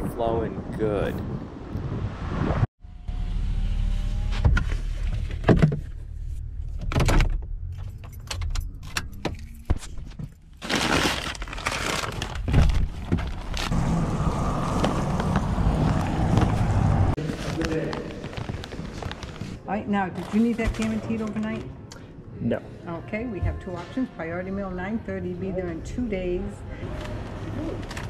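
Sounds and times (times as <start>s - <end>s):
steady outdoor noise: 12.5s - 28.0s.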